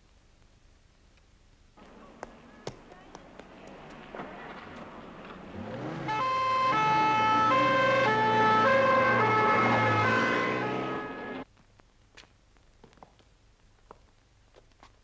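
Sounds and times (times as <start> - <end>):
low engine hum: 1.8 - 11.4
two-tone emergency siren: 5.8 - 11.4.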